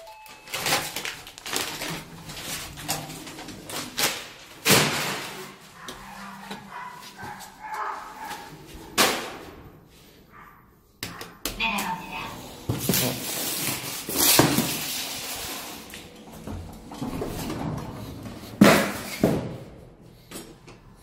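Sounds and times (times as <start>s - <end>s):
thumps and bangs in hallway: 4.0s - 7.5s, 16.3s - 19.9s.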